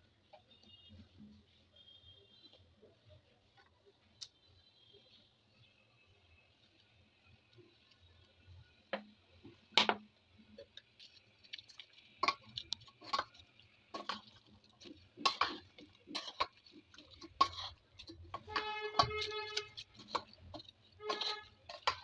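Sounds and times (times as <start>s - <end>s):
utensils clacking on metal pot: 12.1s - 22.0s.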